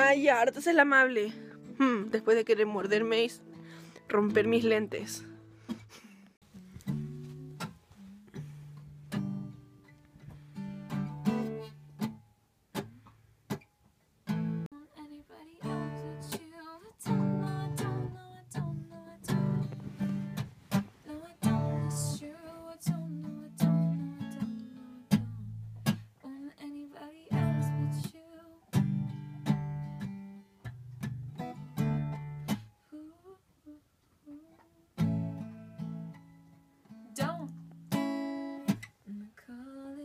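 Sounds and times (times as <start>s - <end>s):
acoustic guitar strumming: 0.0s - 14.6s, 15.6s - 26.1s, 28.7s - 32.7s, 35.0s - 39.0s
young woman singing: 14.7s - 19.9s, 21.0s - 25.4s, 26.2s - 28.8s, 32.9s - 35.0s, 37.0s - 37.6s, 39.1s - 40.0s.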